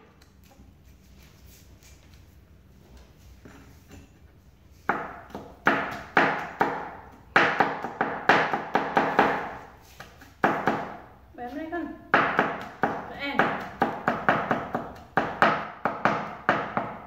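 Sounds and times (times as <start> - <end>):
knife chopping on wooden board: 4.9 - 11.0, 12.1 - 17.0.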